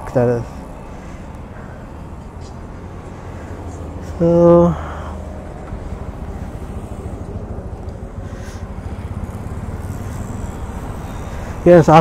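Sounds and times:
motorcycle engine idling: 3.4 - 12.0.

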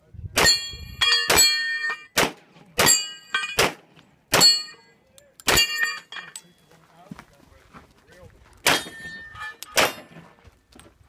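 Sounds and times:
steel plate target clanging: 0.4 - 2.2, 2.8 - 6.6, 8.7 - 10.2
pistol shots: 2.1 - 4.6, 8.6 - 9.1.

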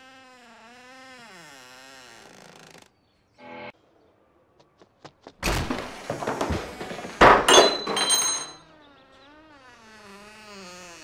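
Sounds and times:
wooden door banging: 5.4 - 8.5
high ringing rattle: 7.5 - 8.6.

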